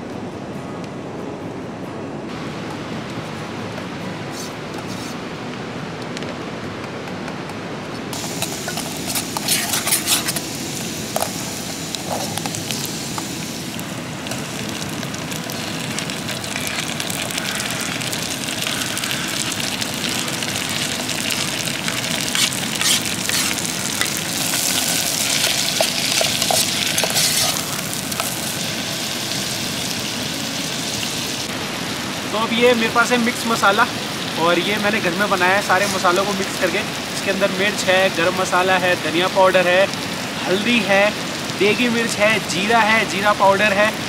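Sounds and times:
vegetables sizzling in oil: 8.1 - 44.0
spoon scraping a pot: 8.7 - 10.4, 22.3 - 24.1, 25.8 - 27.6.

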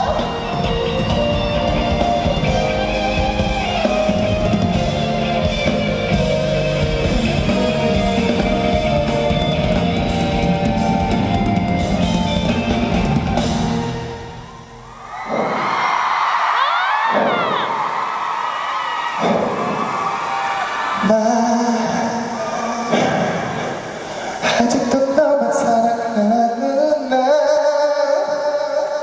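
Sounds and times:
live instrumental band music: 0.0 - 14.6.

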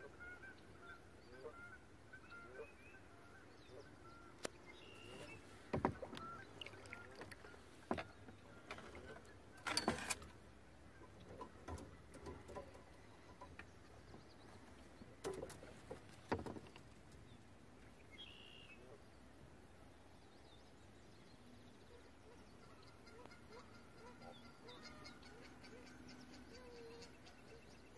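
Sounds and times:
faint bird chirps: 0.1 - 9.9, 18.0 - 19.2, 20.2 - 27.9
swan splashing water: 5.2 - 7.9.

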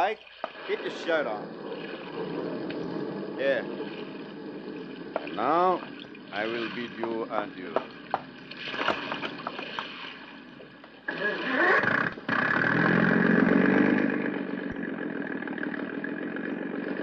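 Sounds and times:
motorboat engine cranking and running: 6.9 - 10.0, 10.6 - 17.0.

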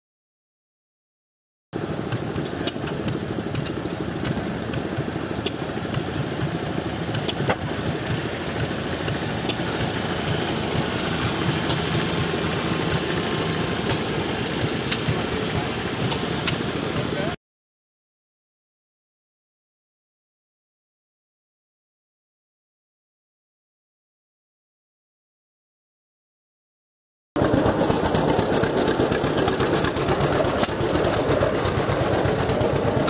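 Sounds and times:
tractor engine running: 1.8 - 17.4, 27.4 - 33.0.

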